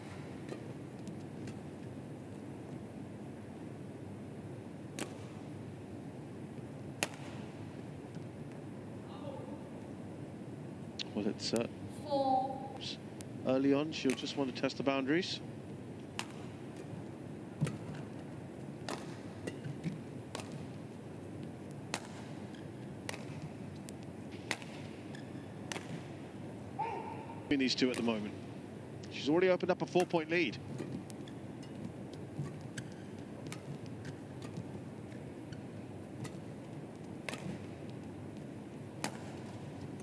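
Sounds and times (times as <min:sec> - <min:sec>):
rackets hitting shuttlecock: 0:00.0 - 0:02.0, 0:04.9 - 0:05.6, 0:06.9 - 0:07.6, 0:14.0 - 0:14.4, 0:16.0 - 0:29.1, 0:29.8 - 0:40.0
low arena hum: 0:00.0 - 0:40.0
low hall noise: 0:00.0 - 0:40.0.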